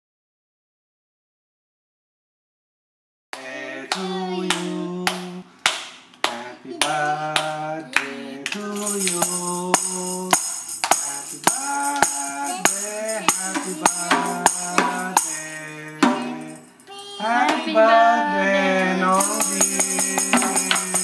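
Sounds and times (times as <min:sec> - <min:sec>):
person singing: 0:03.4 - 0:05.5, 0:06.2 - 0:21.0
hands clapping: 0:03.4 - 0:15.4
tambourine jingles: 0:08.6 - 0:17.1, 0:19.1 - 0:21.0.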